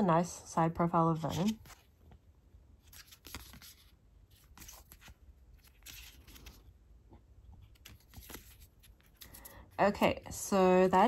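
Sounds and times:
cards being flipped through: 1.2s - 2.2s, 2.8s - 6.8s, 7.5s - 9.7s.

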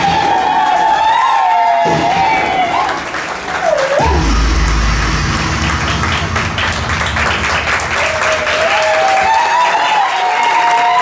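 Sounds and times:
audience applauding: 0.0s - 11.0s
crowd whooping: 0.0s - 11.0s
deep bass music: 4.0s - 8.9s.

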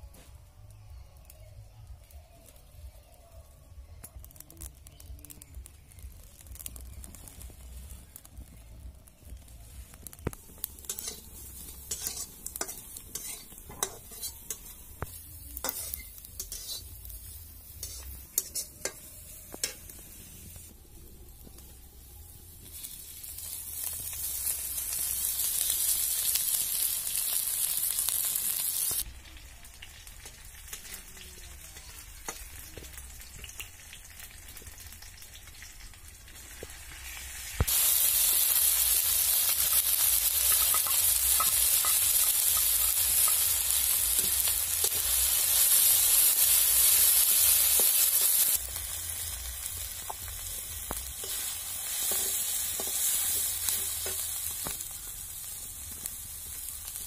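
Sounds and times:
fire crackling: 0.0s - 57.0s
frying sizzle in hot oil: 0.0s - 57.0s.

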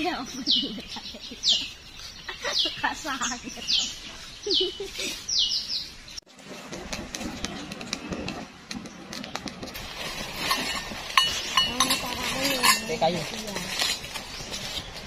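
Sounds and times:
campfire crackling: 6.0s - 15.0s.

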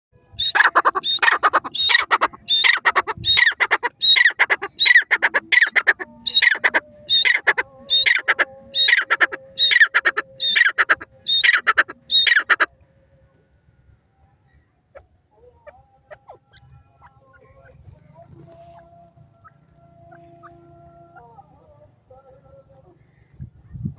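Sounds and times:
francolin calling: 0.3s - 12.7s, 18.4s - 21.7s.

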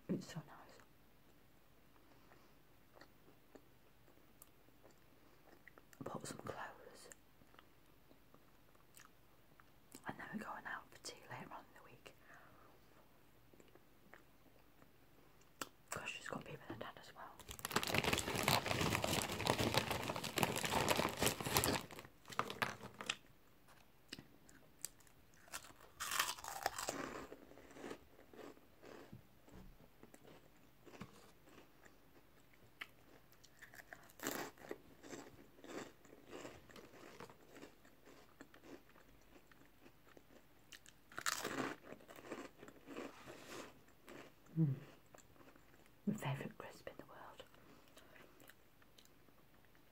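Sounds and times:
crisp packet rustling: 17.4s - 23.2s
crunching and chewing crisps: 17.4s - 29.1s, 30.0s - 46.0s.

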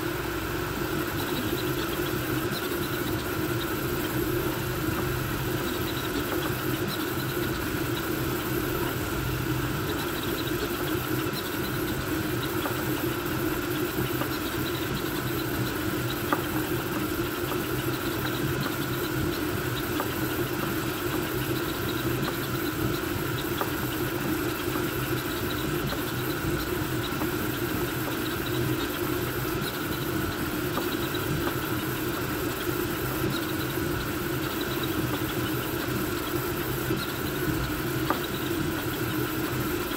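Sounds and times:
printer motors and fans whirring: 0.0s - 39.9s.

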